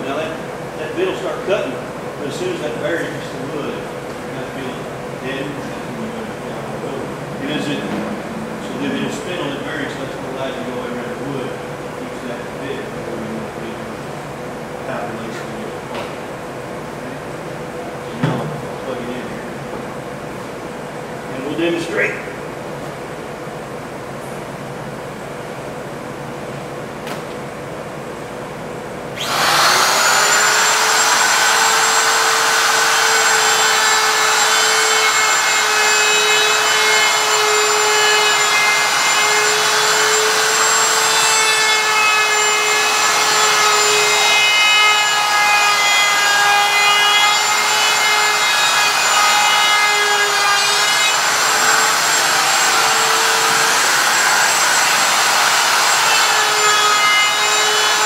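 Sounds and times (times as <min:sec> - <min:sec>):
wood router whining: 0:29.2 - 0:58.0.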